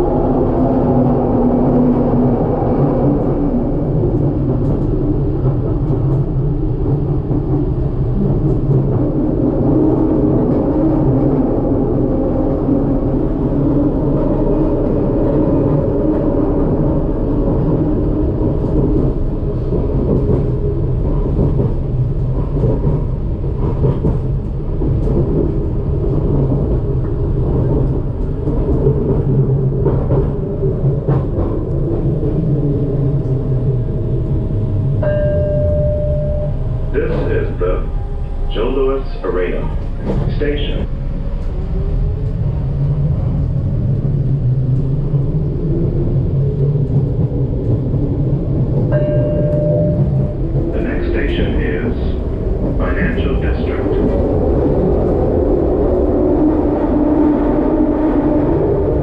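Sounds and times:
train rumbling on rails: 0:00.0 - 0:59.0.

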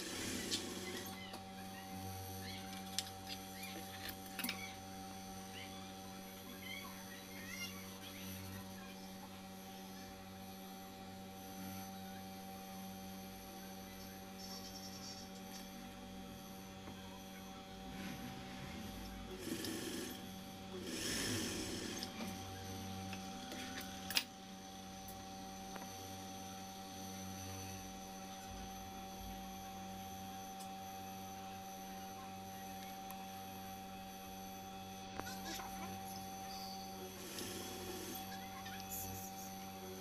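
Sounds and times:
sewing machine motor hum: 0:00.0 - 0:01.3, 0:16.5 - 0:24.2, 0:35.2 - 0:40.0.

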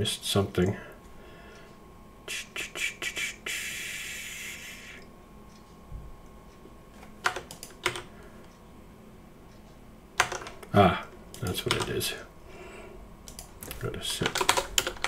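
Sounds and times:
keyboard keystrokes: 0:07.2 - 0:08.1, 0:10.2 - 0:10.7, 0:13.3 - 0:15.0.

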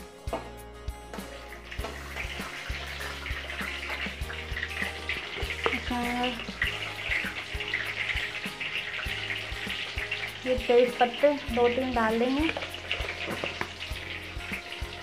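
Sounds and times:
seeds sizzling in hot oil: 0:01.1 - 0:15.0
metal spatula stirring: 0:12.3 - 0:14.4.

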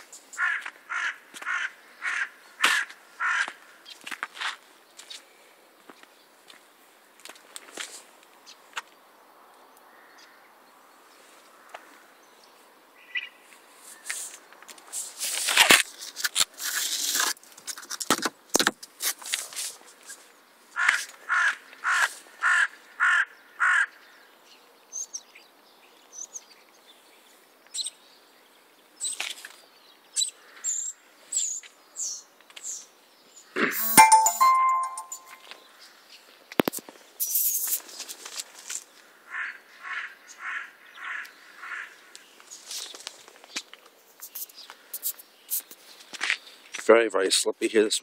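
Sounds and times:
scuffing or crunching noises: 0:03.9 - 0:05.2
small birds chirping: 0:23.9 - 0:34.2, 0:40.2 - 0:46.7.

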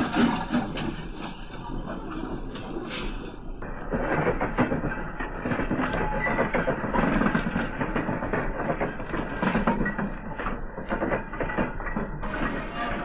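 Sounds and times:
model train wheels clicking on rails: 0:00.0 - 0:13.0.

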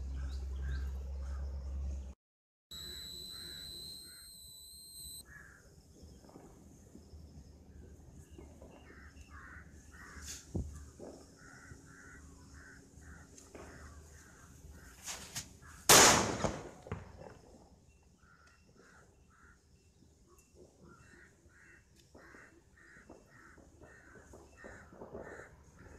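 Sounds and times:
birds calling: 0:02.7 - 0:06.4
firecracker bang: 0:15.9 - 0:17.2.

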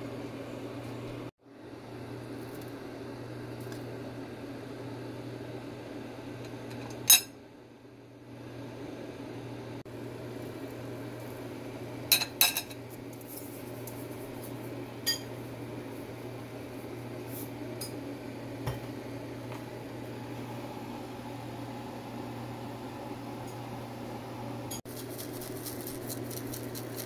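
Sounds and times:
steady low hum: 0:00.0 - 0:27.0
kitchen utensils clinking: 0:12.1 - 0:12.8.

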